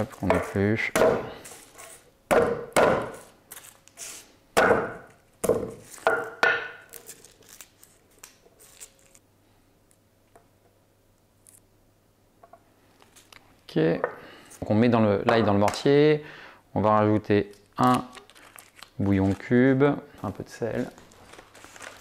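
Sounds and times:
pestle knocking on chopping board: 2.3 - 3.2.

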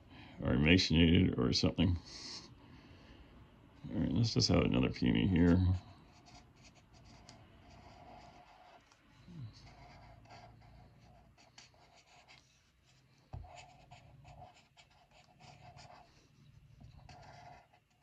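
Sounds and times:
marker scratching on paper: 5.4 - 18.0.

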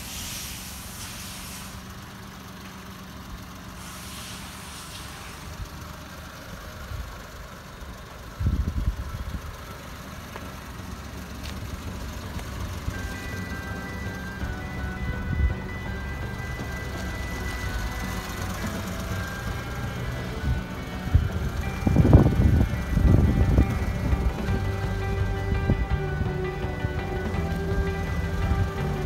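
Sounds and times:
small engine idling: 0.0 - 29.0
music: 12.8 - 29.0
loud low rumble: 14.0 - 29.0.

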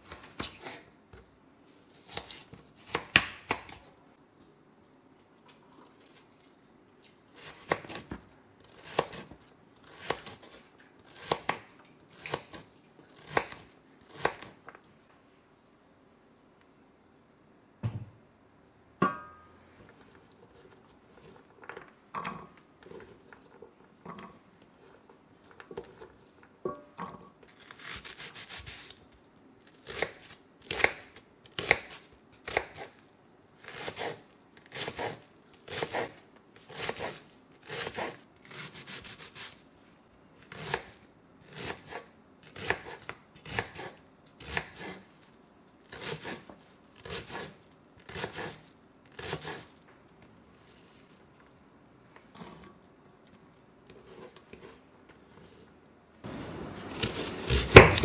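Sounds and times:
knife cutting onion on board: 7.4 - 14.6, 29.8 - 32.9, 33.6 - 39.6, 40.5 - 45.1, 45.9 - 49.7, 56.9 - 58.0.

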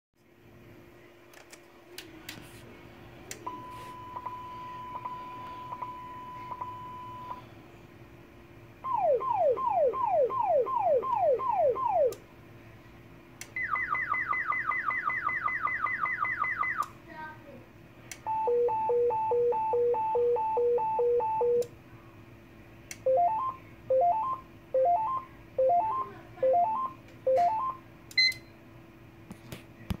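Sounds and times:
paging encoder alert tones: 18.3 - 21.6, 23.1 - 28.5.

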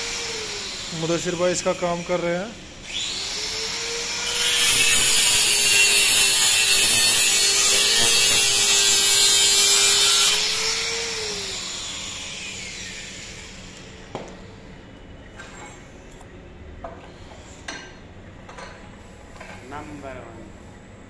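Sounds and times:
angle grinder grinding metal: 3.0 - 13.5.

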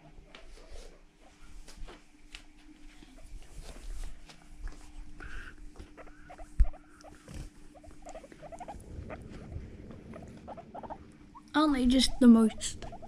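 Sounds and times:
guinea pigs squeaking: 5.8 - 13.0.

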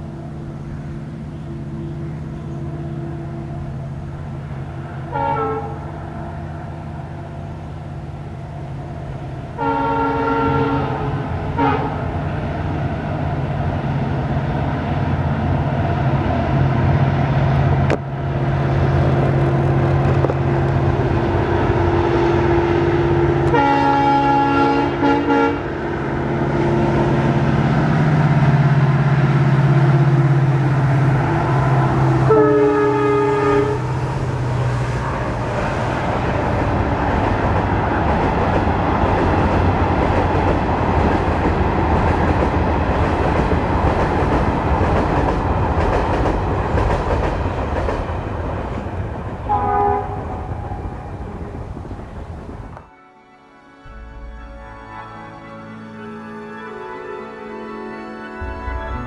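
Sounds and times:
locomotive engine humming: 0.0 - 52.9, 53.8 - 59.0
train coaches rolling on track: 0.0 - 52.9
locomotive horn blasts: 5.0 - 6.4, 9.6 - 12.1, 22.5 - 25.8, 29.7 - 35.1, 49.5 - 51.1, 53.4 - 59.0.

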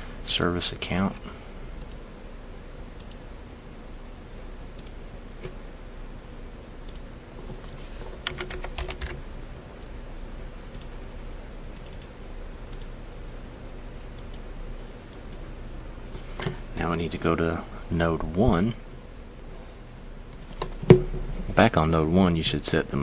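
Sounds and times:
steady low hum: 0.0 - 23.0
keyboard typing: 8.2 - 9.2, 10.7 - 10.9, 11.7 - 12.1.

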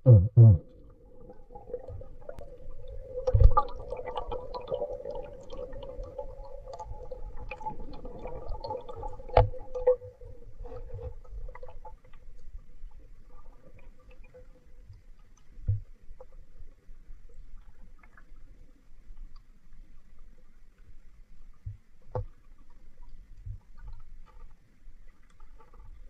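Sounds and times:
muffled underwater hum: 0.0 - 4.3.

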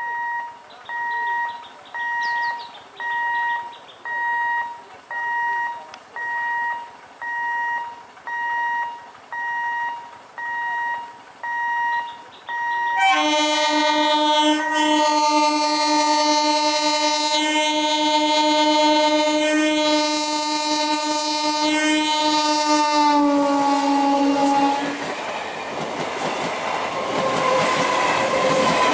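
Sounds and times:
level crossing alarm beeping: 0.0 - 13.3
train horn: 13.0 - 25.2, 27.0 - 28.9.

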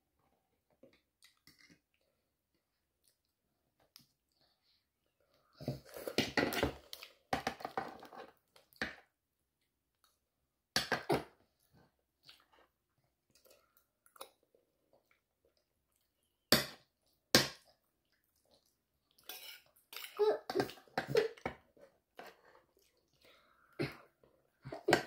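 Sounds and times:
child chewing: 11.5 - 25.0.

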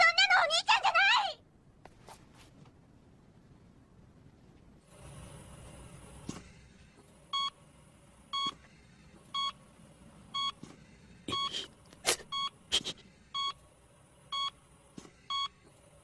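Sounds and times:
heart monitor beeping: 7.3 - 7.6, 8.3 - 8.6, 9.3 - 9.6, 10.3 - 10.7, 11.3 - 11.6, 12.3 - 12.6, 13.3 - 13.6, 14.3 - 14.6, 15.2 - 15.6.

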